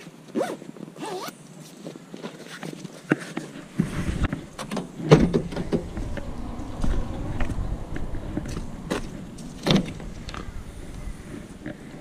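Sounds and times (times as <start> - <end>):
low rumble: 3.7 - 12.0
car door shutting: 8.9 - 10.4.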